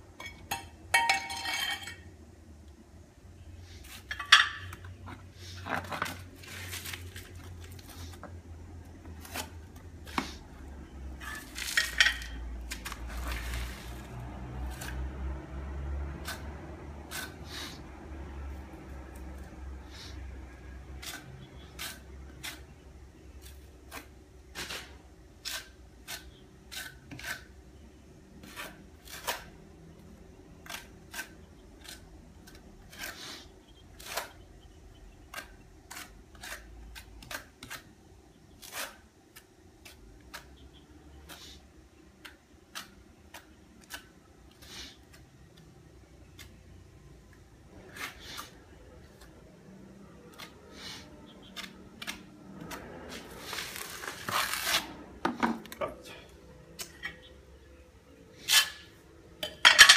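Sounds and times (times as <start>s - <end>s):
trowel scraping mortar on floor: 5.1s - 8.3s, 23.4s - 27.5s, 28.4s - 29.5s, 30.6s - 34.4s, 47.7s - 48.6s, 50.4s - 55.1s, 58.4s - 58.9s.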